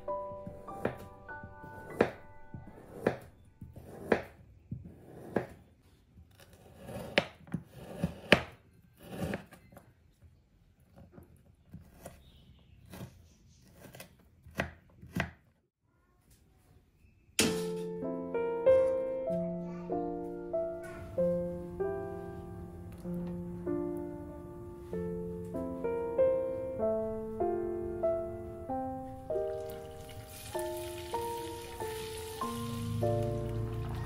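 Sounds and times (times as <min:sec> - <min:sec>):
piano music: 0:00.0 - 0:04.3, 0:17.4 - 0:34.0.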